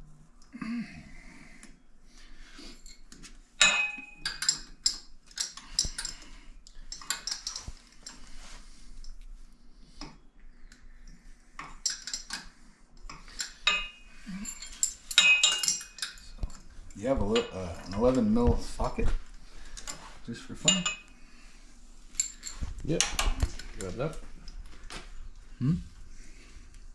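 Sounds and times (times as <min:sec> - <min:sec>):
metal tools clinking: 0:03.6 - 0:06.3, 0:06.9 - 0:08.2, 0:13.1 - 0:16.7, 0:17.3 - 0:18.1, 0:19.8 - 0:21.1, 0:22.1 - 0:24.1.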